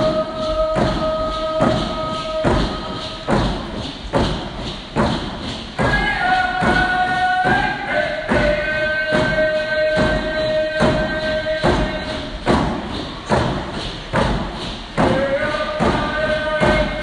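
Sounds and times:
voices singing long notes: 0.0 - 3.8
steady drum beat: 0.0 - 17.0.

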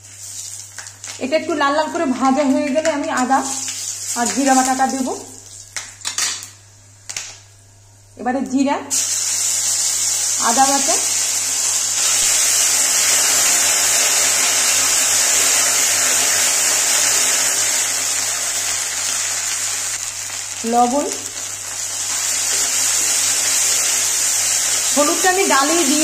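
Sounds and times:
paste sizzling in hot oil: 8.9 - 26.0.

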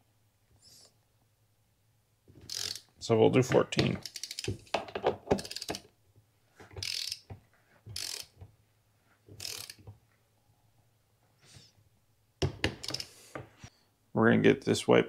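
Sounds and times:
torque wrench ratchet clicking: 2.5 - 2.9, 4.0 - 4.6, 5.4 - 5.8, 6.8 - 7.2, 8.0 - 8.3, 9.4 - 9.8, 12.8 - 13.1.

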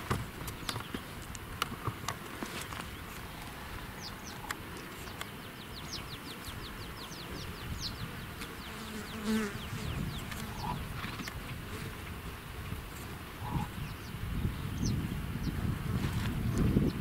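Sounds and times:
flying insect buzzing: 2.3 - 13.9.

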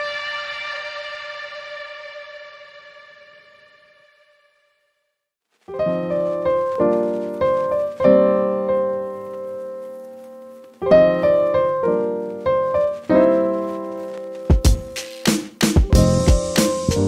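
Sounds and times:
piano chords: 5.7 - 17.0.

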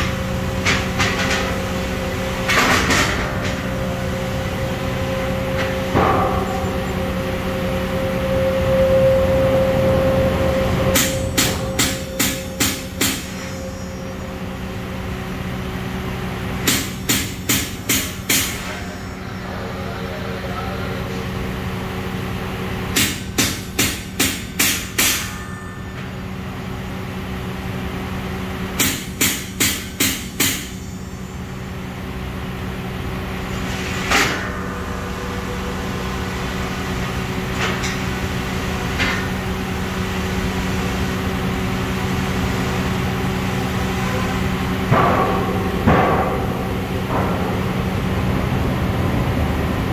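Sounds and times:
steady machine hum: 0.0 - 49.9
hammer striking saw blade: 10.9 - 14.1, 16.6 - 19.1, 23.0 - 26.1, 28.8 - 30.9, 33.8 - 35.1, 44.9 - 47.6.

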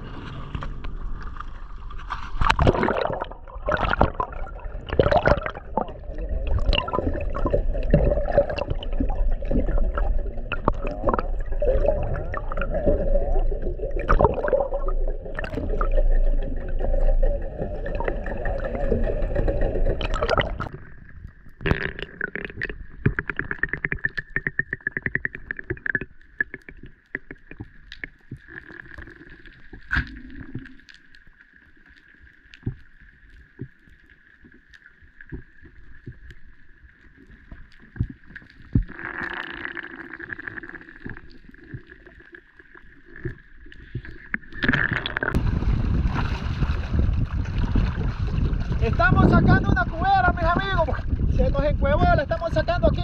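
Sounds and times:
water splashing: 0.0 - 51.4
steady underwater hum: 0.0 - 53.0
underwater clicks and crackles: 0.0 - 53.0
wind noise: 44.6 - 53.0.

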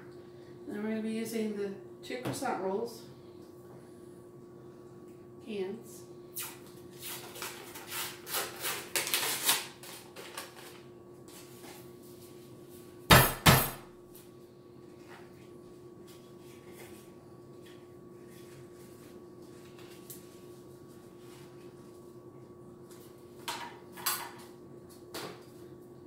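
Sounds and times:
paper wrapper tearing: 7.0 - 10.8.

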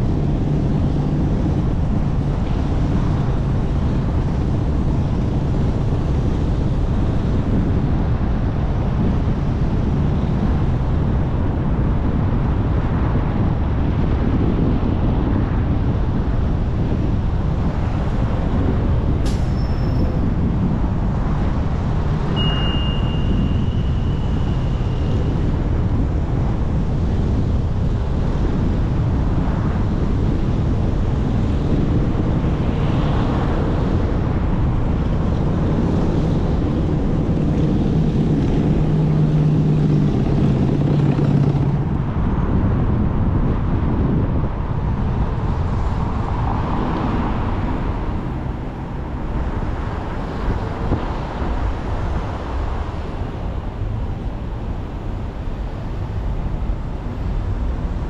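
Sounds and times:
car road and wind rumble: 0.0 - 58.0
thin high squeal: 22.4 - 24.8.

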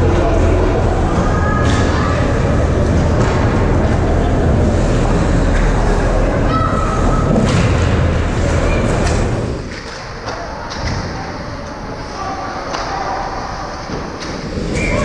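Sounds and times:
low rumble: 0.0 - 9.7.

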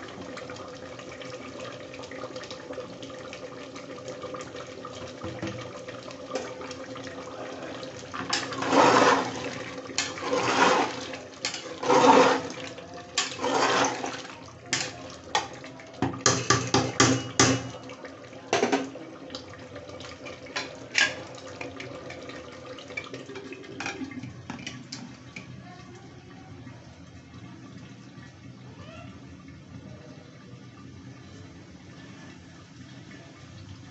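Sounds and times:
curry bubbling in a pot: 0.0 - 33.9
ladle stirring and sloshing: 8.1 - 25.5.

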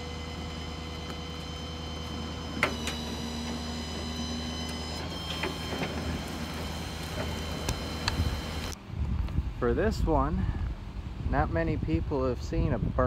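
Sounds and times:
winch whining: 0.0 - 8.8
truck engine hum: 0.0 - 9.0.

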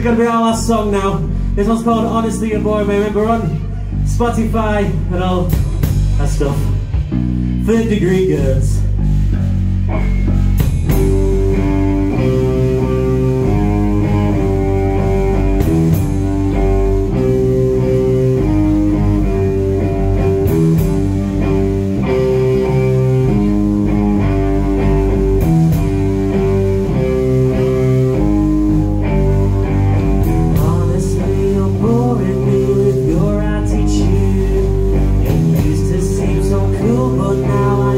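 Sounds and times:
person singing: 0.0 - 6.8, 30.2 - 37.9
bass guitar: 0.0 - 37.9
drum kit: 0.0 - 37.9
electric guitar riffing: 0.0 - 37.9.

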